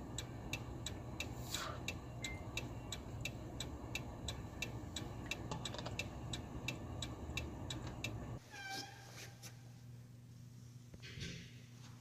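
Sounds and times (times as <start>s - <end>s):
low rumble of car: 0.0s - 8.4s
car indicator ticking: 0.1s - 8.2s.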